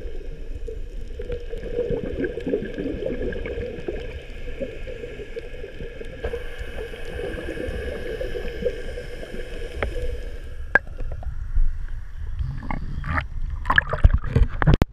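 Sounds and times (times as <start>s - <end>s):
underwater bubbles gurgling: 0.0s - 14.8s
steady high whine: 4.0s - 12.7s.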